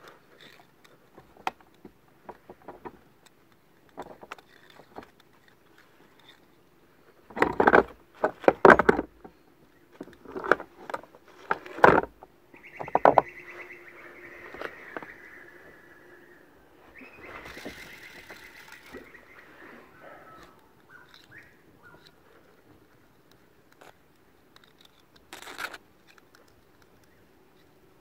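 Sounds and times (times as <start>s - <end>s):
fishing line winding onto spool: 17.3s - 19.3s.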